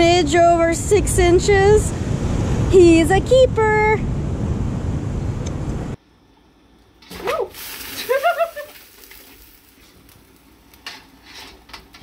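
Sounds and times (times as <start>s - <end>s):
short high cries: 7.1s - 8.8s.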